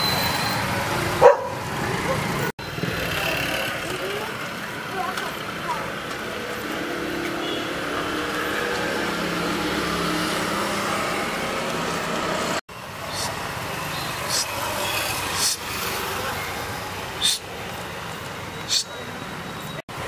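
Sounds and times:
vehicle hum: 0.0 - 20.0.

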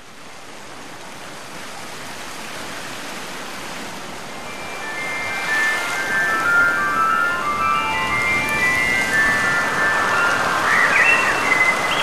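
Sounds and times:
high chime-like music notes: 4.4 - 12.0
steady rushing noise: 4.4 - 12.0.

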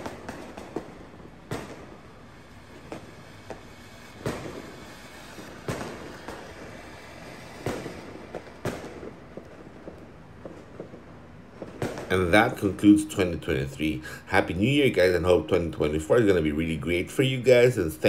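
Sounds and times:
firecracker bangs: 0.0 - 17.8
fountain firework hissing: 0.0 - 18.0.

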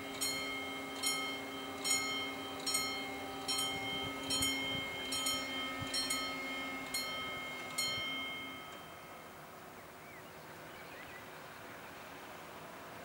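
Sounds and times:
level crossing warning bell: 0.0 - 9.6.

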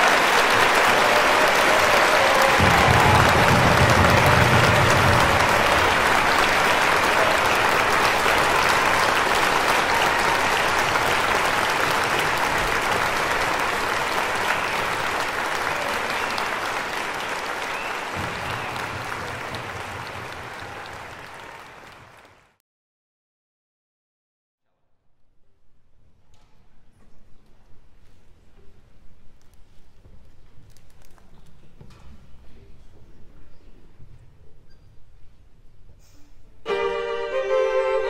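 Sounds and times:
audience applauding: 0.0 - 22.6.

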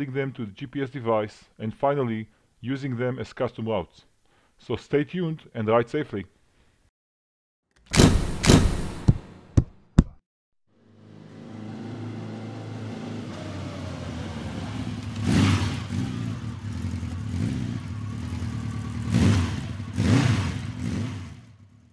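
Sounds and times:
motorcycle engine running: 10.8 - 21.9.

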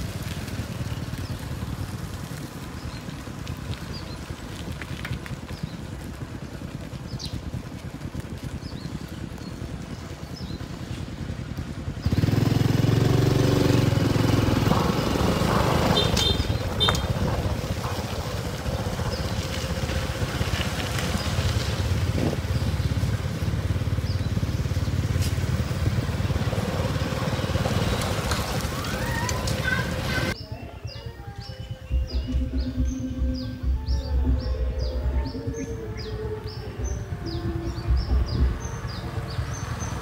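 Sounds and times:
small motorcycle engine running: 0.0 - 31.0, 31.9 - 40.0.

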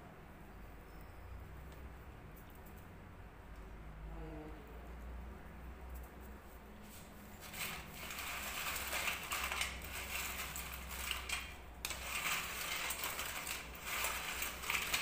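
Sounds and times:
potato chips crackling on plate: 7.4 - 15.0.

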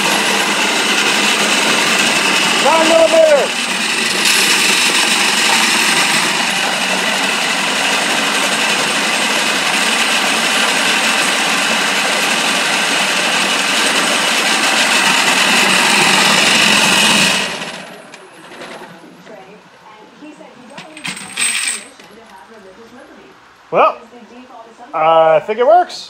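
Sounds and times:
brass cases rattling on metal grate: 20.7 - 22.1.

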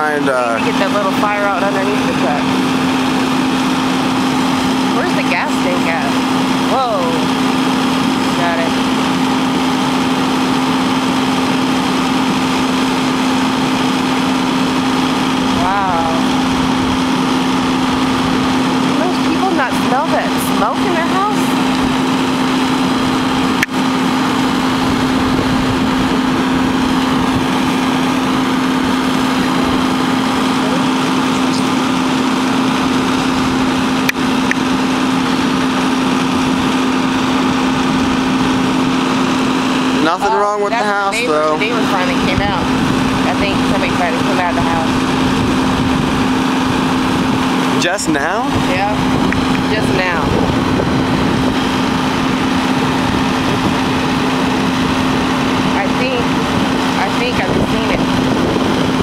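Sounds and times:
fire engine running: 0.0 - 59.0.

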